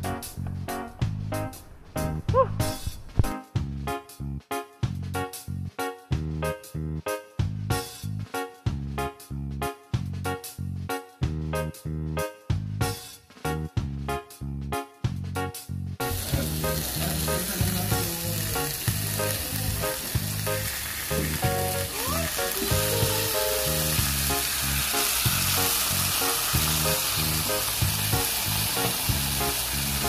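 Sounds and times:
background music with bass line: 0:00.0 - 0:30.0
steady hiss: 0:16.1 - 0:30.0.

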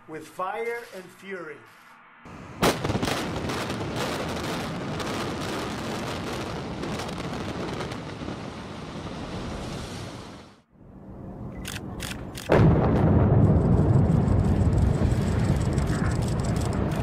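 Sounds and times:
rumble of falling masonry: 0:12.5 - 0:17.0.

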